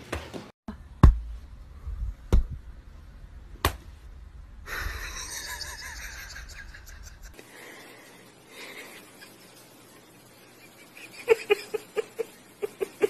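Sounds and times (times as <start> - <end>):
hand slapping floor mat: 3.6 - 3.9.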